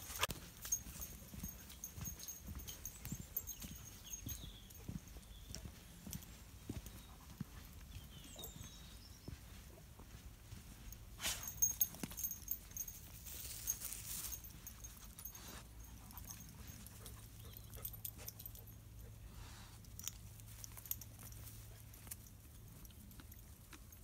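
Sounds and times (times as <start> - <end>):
dog footsteps on dirt path: 0.0 - 18.8
dogs panting: 14.3 - 20.2.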